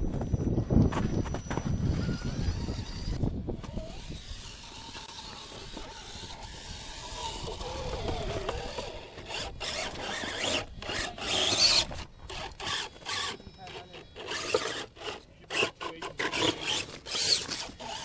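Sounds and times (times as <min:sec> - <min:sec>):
electric motor and gears whining: 0:00.0 - 0:18.0
tyres scrabbling on rock: 0:07.3 - 0:18.0.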